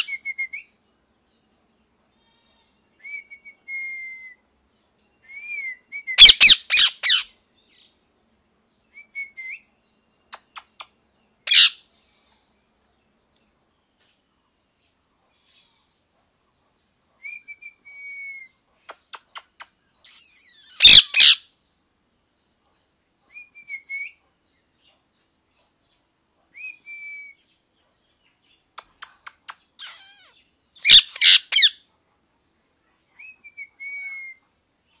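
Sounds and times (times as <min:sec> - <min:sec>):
parakeet harsh screeches: 0:06.2 - 0:07.2, 0:11.5 - 0:11.8, 0:20.1 - 0:21.4, 0:29.8 - 0:31.8.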